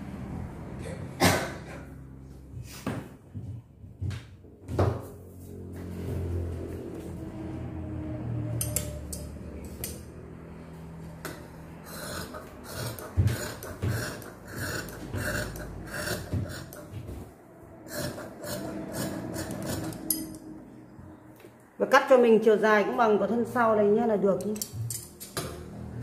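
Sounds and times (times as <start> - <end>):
shears snipping fabric: 11.9 - 16.9, 17.9 - 20.3.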